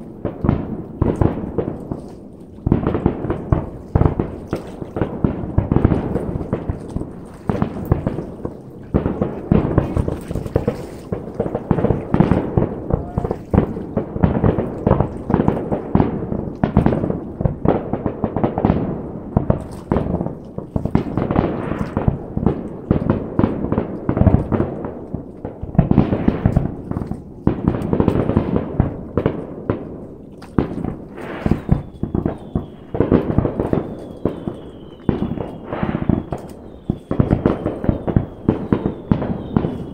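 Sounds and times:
fireworks bangs and crackling: 0:00.0 - 0:39.9
high wavering whistle: 0:33.8 - 0:39.9.

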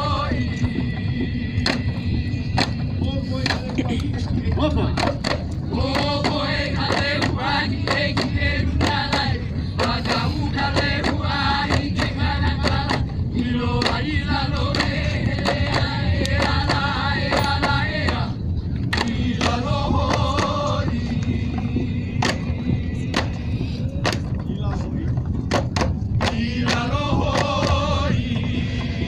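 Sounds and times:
several voices chanting: 0:00.0 - 0:03.8, 0:04.6 - 0:18.4, 0:19.0 - 0:24.2, 0:26.2 - 0:29.0
sharp percussive beats: 0:00.0 - 0:29.0
steady low rumble: 0:00.0 - 0:29.0.

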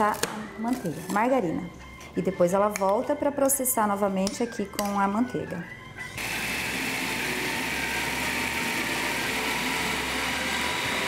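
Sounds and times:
food processor motor running: 0:06.2 - 0:11.0.

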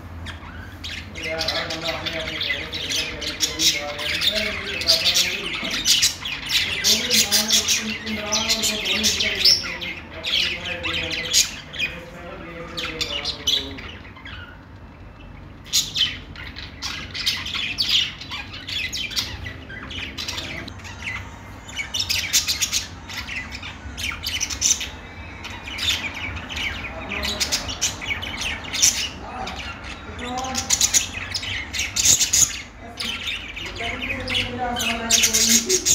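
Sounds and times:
budgerigars chirping and squawking: 0:00.0 - 0:35.9.

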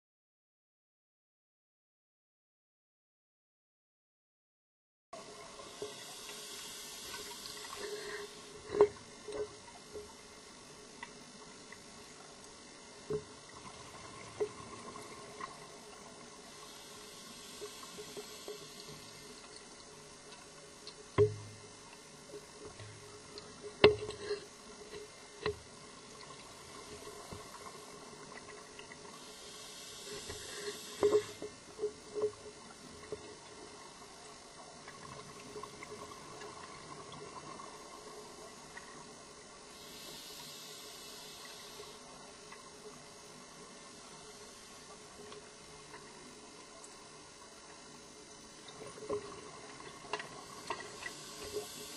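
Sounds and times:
exhaled bubbles hissing underwater: 0:05.2 - 0:09.8, 0:11.9 - 0:20.2, 0:25.8 - 0:46.2, 0:48.8 - 0:51.9
diving gear knocks and clicks: 0:21.2 - 0:21.5.

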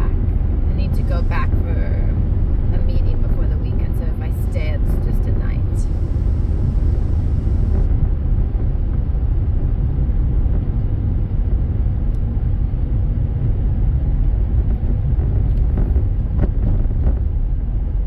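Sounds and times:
car road and engine rumble: 0:00.0 - 0:18.0.

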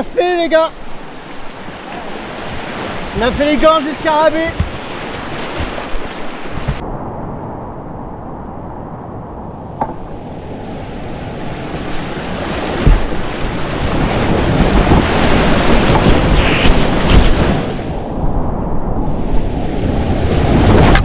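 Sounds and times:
river whitewater roaring: 0:00.0 - 0:06.8
wind buffeting microphone: 0:01.0 - 0:21.0
low thumps: 0:09.7 - 0:10.3, 0:12.7 - 0:13.4.

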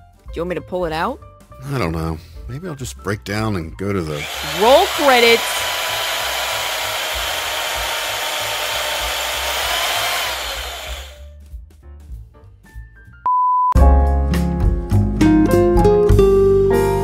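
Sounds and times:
electric drill whirring: 0:04.1 - 0:11.3
short beep: 0:13.3 - 0:13.8
piano music: 0:13.8 - 0:17.0.

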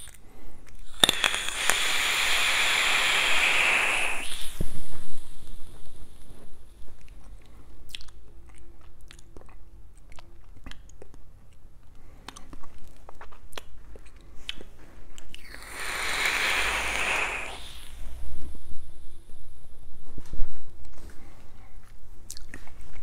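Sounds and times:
mouth clicks and lip smacks: 0:00.0 - 0:18.0, 0:22.2 - 0:23.0
hiss of e-cigarette drag: 0:00.8 - 0:06.7, 0:15.4 - 0:19.8.

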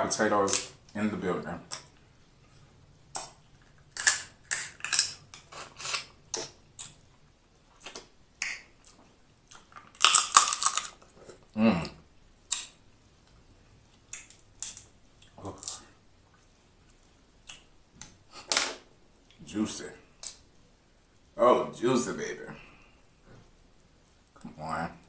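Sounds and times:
crab shells cracking: 0:03.1 - 0:07.0, 0:07.8 - 0:11.2, 0:12.5 - 0:12.8, 0:14.1 - 0:15.8.

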